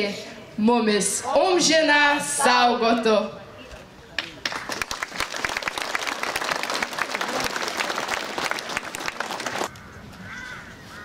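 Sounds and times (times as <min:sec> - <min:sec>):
crowd applauding: 0:04.2 - 0:09.7.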